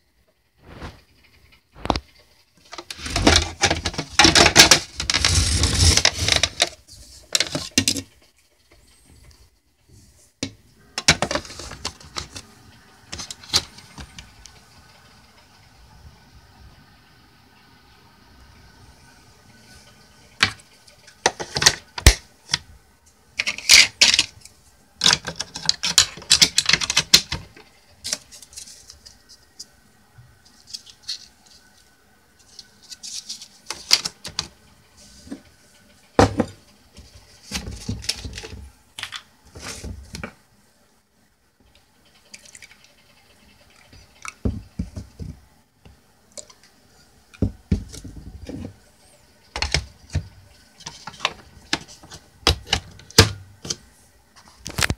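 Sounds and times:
plastic parts clicking and clattering: 1.4s - 8.2s, 10.4s - 12.5s, 13.1s - 14.3s, 20.4s - 22.7s, 23.4s - 29.2s, 32.4s - 34.6s, 36.2s - 40.4s, 49.5s - 53.8s
plastic scrapes: 2.7s - 8.1s, 11.1s - 14.3s.

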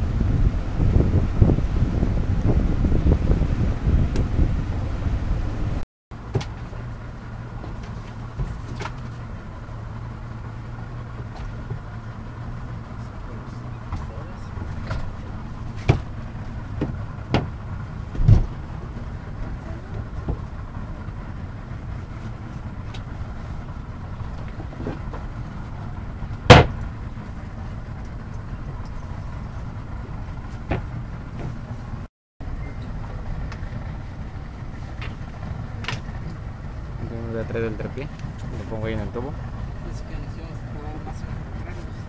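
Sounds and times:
boat engine idling: 0.0s - 42.0s
sharp knocks: 26.5s - 26.8s.

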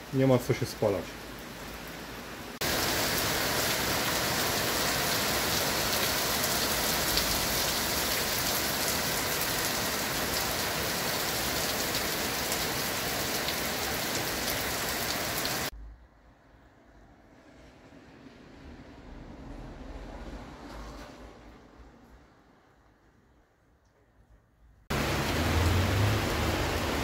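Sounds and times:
heavy rain pouring: 0.0s - 15.7s, 24.9s - 27.0s.

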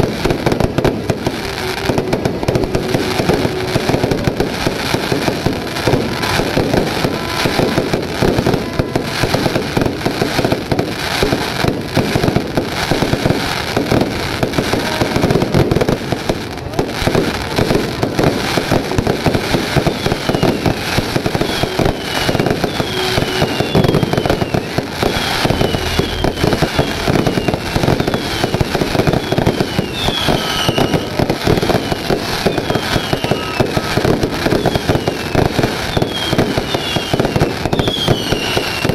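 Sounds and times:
fireworks bangs and crackling: 0.0s - 38.9s
short falling whistles: 29.1s - 31.1s, 36.0s - 38.9s.

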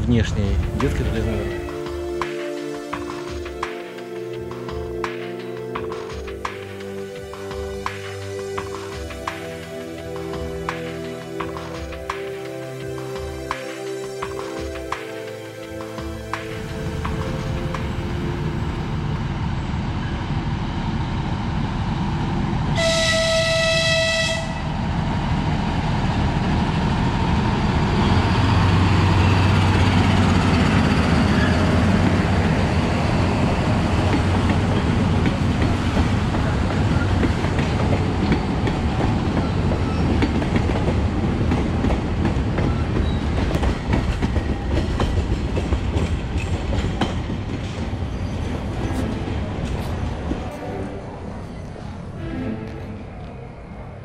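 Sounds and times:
diesel locomotive engine: 0.0s - 54.0s
train horn blast: 22.7s - 24.8s.

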